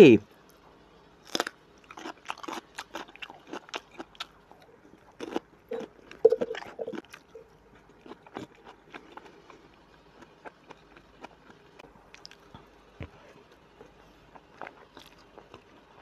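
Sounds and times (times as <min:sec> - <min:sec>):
crunchy bite into vegetable: 0:01.2 - 0:04.3.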